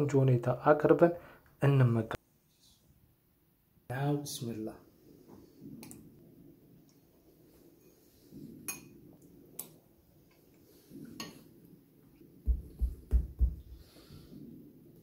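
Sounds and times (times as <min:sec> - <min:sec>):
low muffled thumps: 0:12.4 - 0:13.8.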